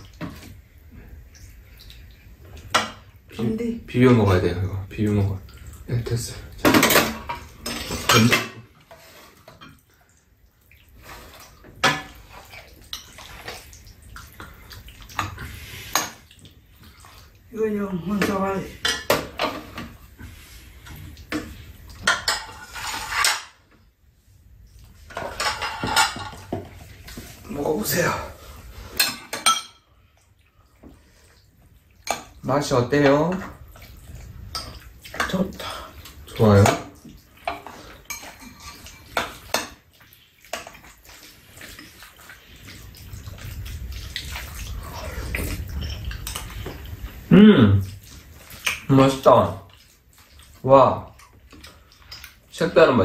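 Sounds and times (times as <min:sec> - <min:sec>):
metal spoons scraping bowls: 0:22.0 - 0:23.6, 0:36.4 - 0:39.8
wet eating mouth sounds: 0:37.0 - 0:52.6.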